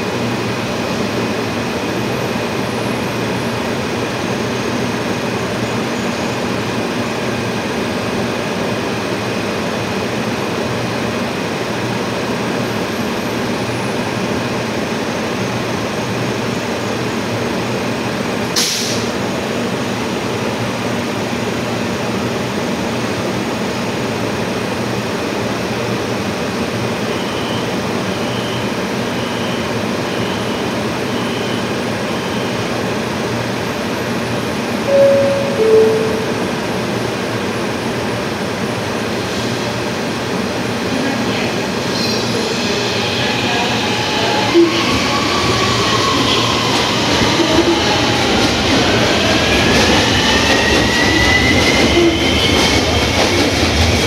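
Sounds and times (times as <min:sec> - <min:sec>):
brief sharp hiss: 0:18.6 - 0:19.1
faint high whine: 0:34.9 - 0:36.8
train equipment humming: 0:34.9 - 0:37.2.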